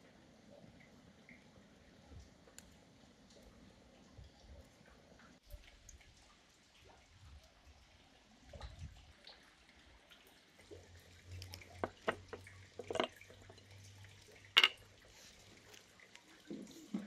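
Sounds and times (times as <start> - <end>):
glass pitcher clicks and knocks: 11.8 - 13.6, 14.6 - 14.8.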